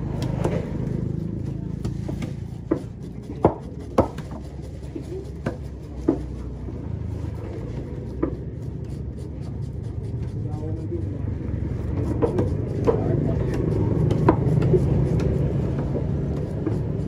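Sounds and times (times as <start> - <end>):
knife knocking on wooden block: 1.8 - 4.5, 12.1 - 15.8.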